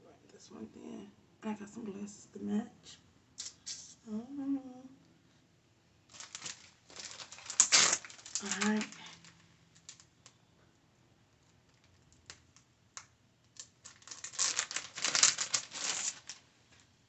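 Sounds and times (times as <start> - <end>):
plastic packaging crinkling: 6.1 - 10.4, 11.6 - 16.8.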